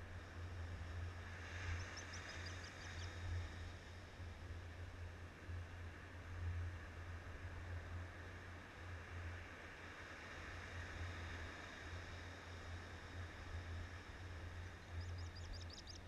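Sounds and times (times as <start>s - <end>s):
bird chirping: 14.8s - 16.0s.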